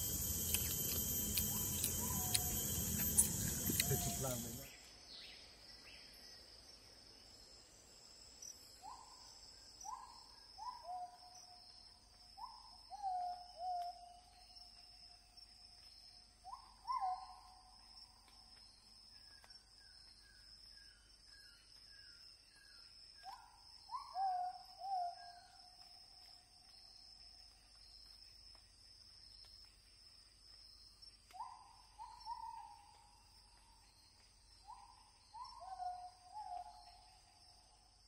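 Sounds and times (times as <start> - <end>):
steady high-pitched whine: 0.0 - 4.9
bird calling short notes: 0.4 - 4.7.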